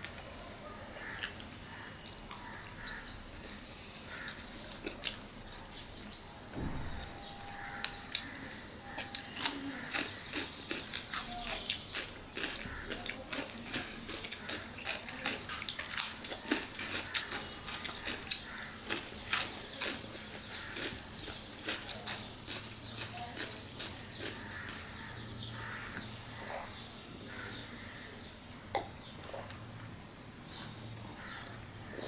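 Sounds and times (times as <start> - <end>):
chewing crunchy cucumber: 1.0 - 6.2, 7.7 - 26.1.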